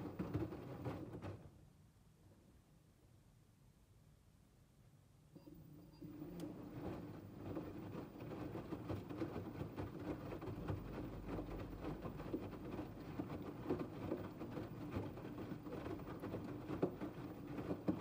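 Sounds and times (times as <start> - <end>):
clothes flopping in drum: 0.0 - 1.5, 6.4 - 18.0
washing machine motor hum: 0.0 - 1.6, 5.4 - 18.0.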